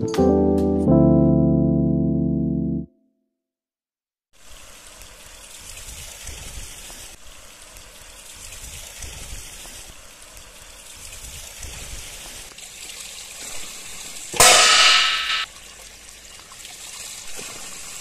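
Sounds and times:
water trickling and splashing: 4.4 - 18.0
metal clang ringing: 14.4 - 15.4.

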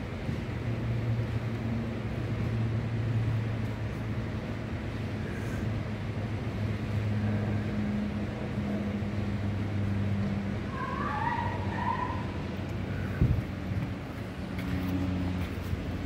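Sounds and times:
low engine hum: 0.0 - 16.0
traffic haze: 0.0 - 16.0
short high calls: 10.7 - 12.4.

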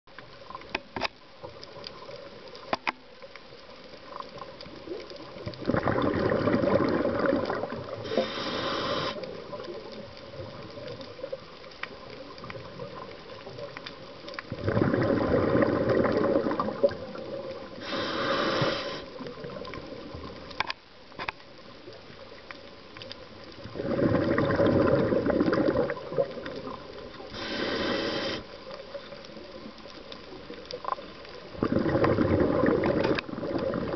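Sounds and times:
faint clicks: 0.1 - 33.9
exhaled bubbles underwater: 4.0 - 20.5, 23.3 - 33.9
regulator inhalation hiss: 8.0 - 9.3, 17.8 - 19.2, 27.3 - 28.6.

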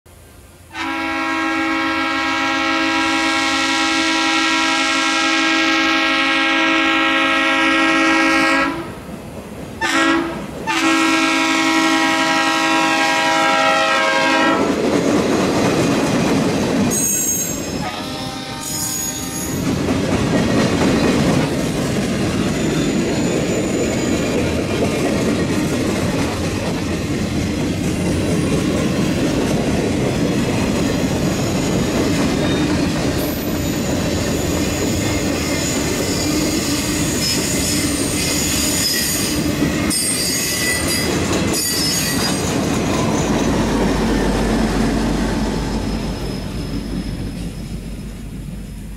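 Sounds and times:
freight train rumbling over rails: 0.1 - 48.9
train horn: 0.7 - 9.0, 9.8 - 14.8, 16.9 - 19.8
wheel squeal: 16.9 - 17.8, 22.5 - 24.4, 32.4 - 43.5, 45.7 - 47.8.

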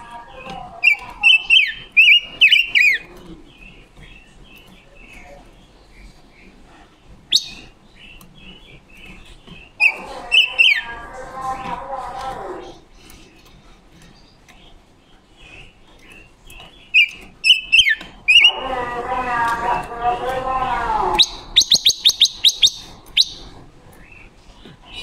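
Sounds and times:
bird whistled song phrases: 0.8 - 3.1, 7.3 - 7.7, 9.8 - 10.9, 16.9 - 18.6, 21.2 - 23.5.

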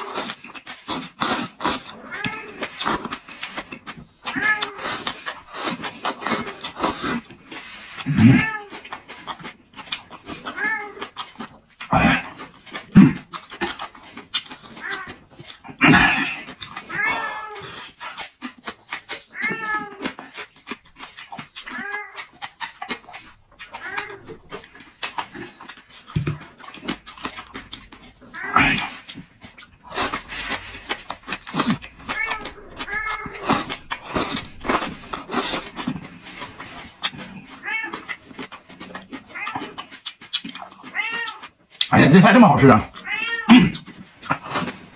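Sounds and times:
person chewing: 0.0 - 44.9
cat meowing: 2.0 - 2.7, 4.2 - 4.9, 8.2 - 8.8, 10.5 - 11.1, 16.9 - 17.6, 19.3 - 20.2, 21.7 - 22.3, 23.7 - 24.4, 28.3 - 28.9, 32.1 - 33.7, 37.6 - 38.1, 40.8 - 41.5, 43.0 - 43.8
pet whining: 28.0 - 30.6, 31.4 - 36.0.

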